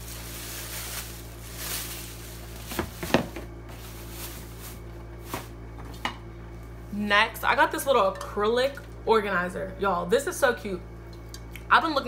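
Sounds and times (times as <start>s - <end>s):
soft rustle of handling: 0.0s - 2.8s.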